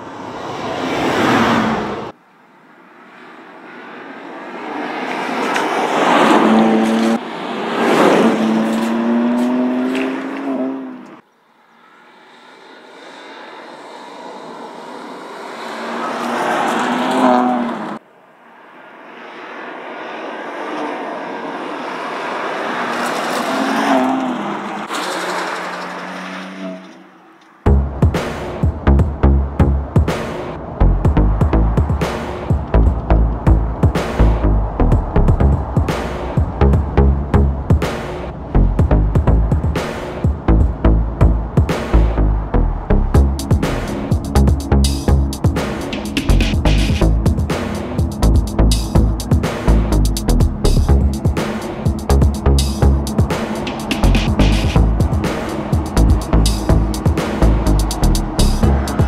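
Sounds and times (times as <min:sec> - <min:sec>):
car engine revving past: 0:00.2 - 0:02.2, 0:03.7 - 0:11.2, 0:11.9 - 0:27.0, 0:29.8 - 0:59.0
electronic music: 0:27.7 - 0:59.0.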